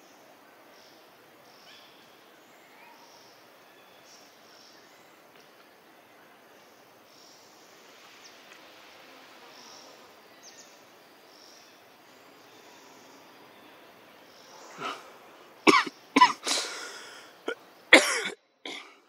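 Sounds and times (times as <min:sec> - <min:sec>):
insects chirping: 0:00.0 - 0:19.0
person coughing: 0:15.7 - 0:19.0.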